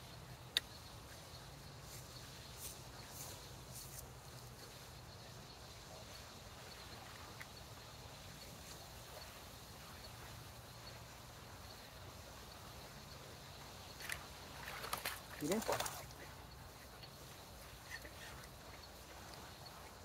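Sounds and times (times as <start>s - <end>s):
faint outdoor hiss: 0.0s - 20.0s
high ticks: 0.4s - 4.7s, 13.9s - 20.0s.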